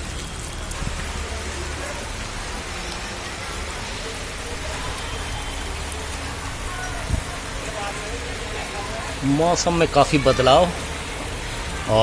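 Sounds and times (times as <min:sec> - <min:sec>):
rain falling steadily: 0:00.0 - 0:12.0.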